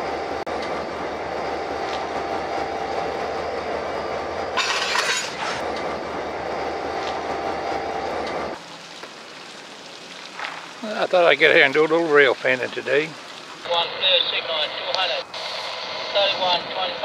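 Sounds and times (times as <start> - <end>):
freight cars rumbling on rails: 0.0 - 8.6.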